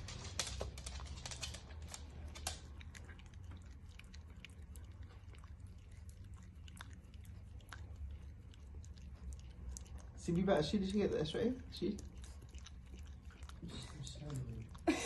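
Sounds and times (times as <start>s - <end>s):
dog licking and chewing: 0.0s - 15.0s.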